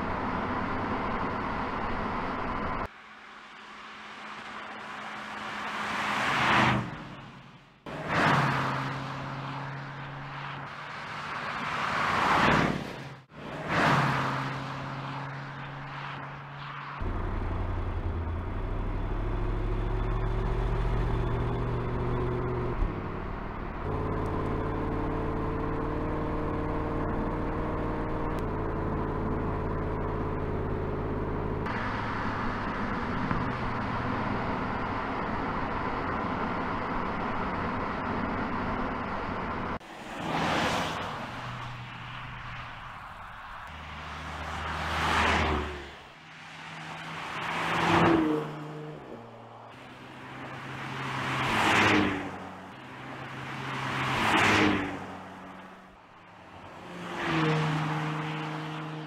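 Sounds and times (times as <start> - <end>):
steady engine drone: 16.6 - 39.8
car rushing past: 39.8 - 55.7, 56.7 - 59.0.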